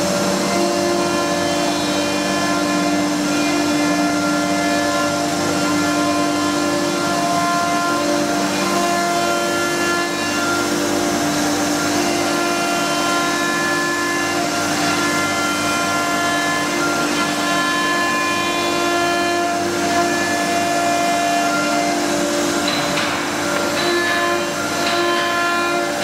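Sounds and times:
router spindle whine: 0.0s - 26.0s
bit cutting board: 16.4s - 26.0s.

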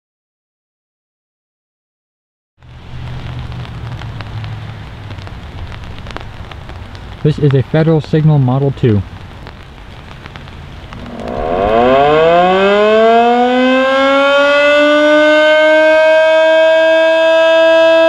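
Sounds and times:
siren winding up and wailing: 11.0s - 18.0s.

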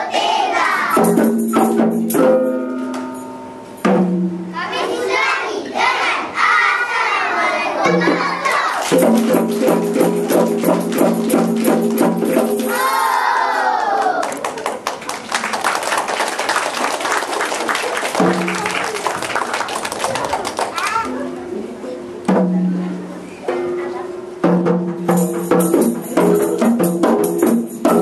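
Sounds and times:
children singing together: 0.0s - 1.1s, 4.6s - 9.0s
sharp percussion beat: 0.8s - 4.6s, 7.8s - 13.1s, 18.1s - 19.2s, 24.4s - 28.0s.

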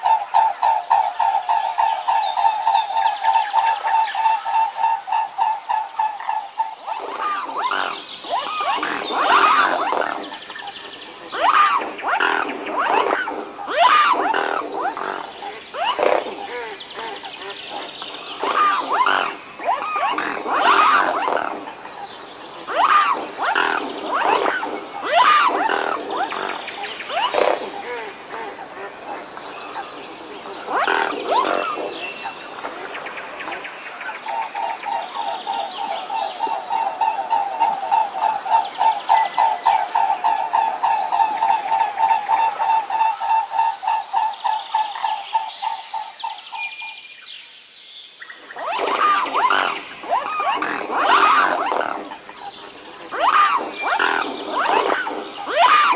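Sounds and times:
swans calling: 3.6s - 33.6s, 48.5s - 55.9s
short animal calls: 11.4s - 17.2s, 22.7s - 28.6s, 48.6s - 52.5s, 53.1s - 55.9s.

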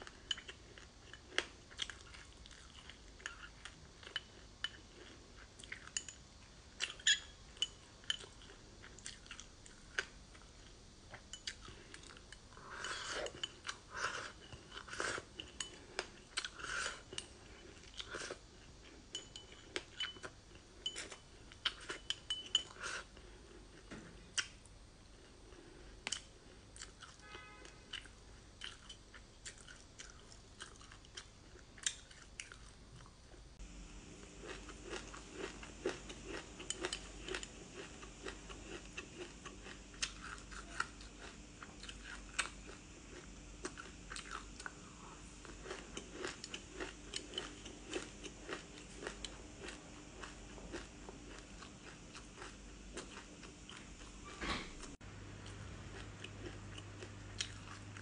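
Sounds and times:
crunching and chewing: 0.0s - 6.2s, 6.8s - 58.0s
metal spoon clinking on glass bowl: 6.9s - 8.3s, 19.1s - 21.2s, 21.9s - 22.8s.

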